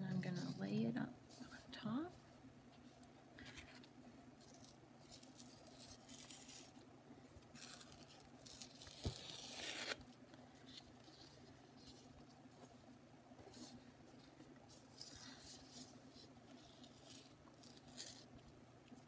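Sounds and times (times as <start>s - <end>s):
paper tearing: 4.4s - 6.8s, 7.5s - 10.1s, 14.8s - 18.3s.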